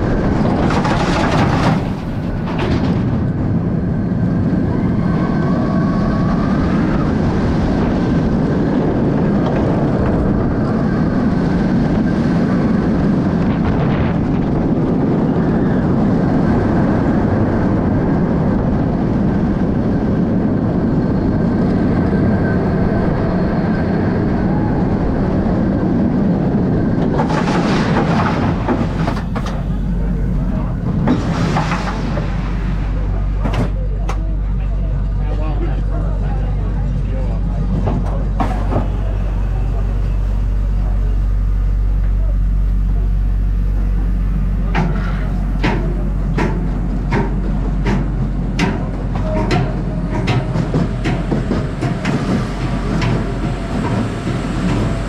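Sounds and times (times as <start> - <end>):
roller coaster wheels roaring on track: 0.0 - 55.0.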